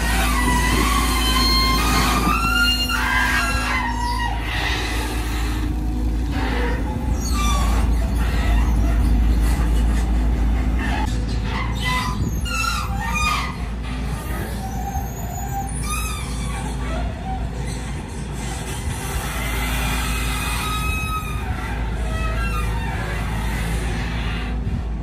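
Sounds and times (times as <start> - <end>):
excavator diesel engine running: 0.0 - 25.0.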